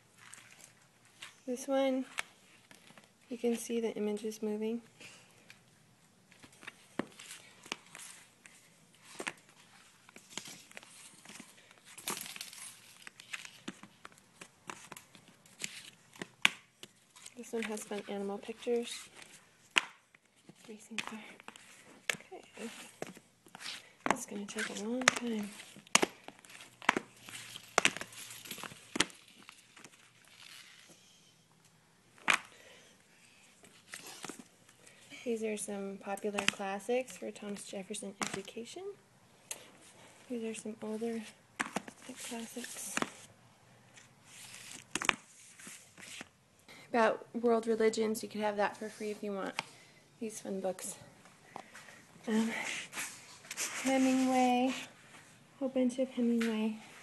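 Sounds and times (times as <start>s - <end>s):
pages rustling: 0.2s - 1.4s, 6.3s - 31.0s, 33.5s - 35.0s, 36.4s - 37.6s, 39.6s - 46.4s, 51.5s - 55.2s.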